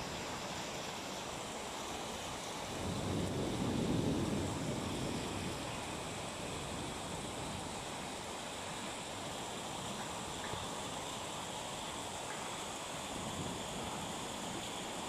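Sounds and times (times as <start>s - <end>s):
steady rain hiss: 0.0s - 15.0s.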